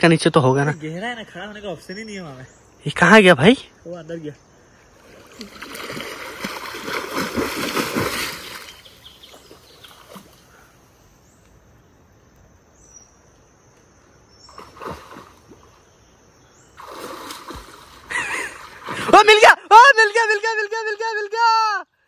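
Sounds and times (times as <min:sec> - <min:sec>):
water splashing: 0:05.0 - 0:10.5, 0:14.5 - 0:15.8, 0:16.8 - 0:19.6.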